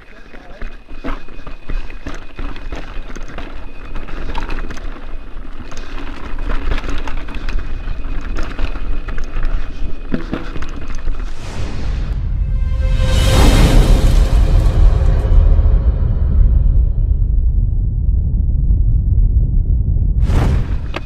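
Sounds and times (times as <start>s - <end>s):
bike rattling over rocks: 0.0s - 11.4s
tyres rolling over loose stones: 0.0s - 11.4s
rising whoosh: 11.3s - 20.8s
wind on microphone: 16.2s - 21.0s.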